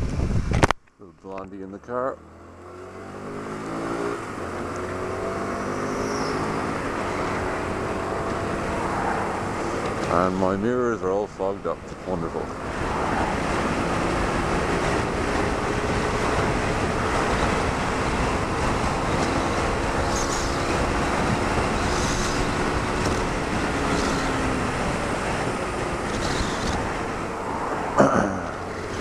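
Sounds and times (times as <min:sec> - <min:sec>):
wind and road noise: 0:00.0 - 0:29.0
motorcycle engine running: 0:11.4 - 0:29.0.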